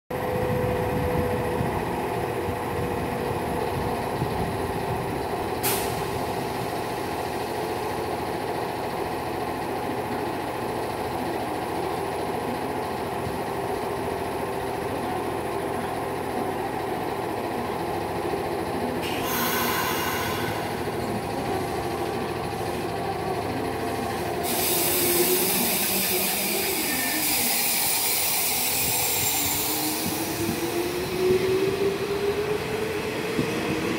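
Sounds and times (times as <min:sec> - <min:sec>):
electric train equipment running: 0:00.2 - 0:33.9
train whine rising in pitch: 0:18.9 - 0:33.9
air hiss: 0:24.4 - 0:30.5.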